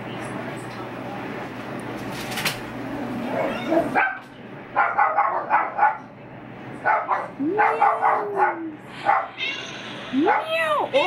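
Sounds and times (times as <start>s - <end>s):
dogs barking: 3.2s - 6.1s, 6.8s - 9.4s, 10.2s - 10.6s.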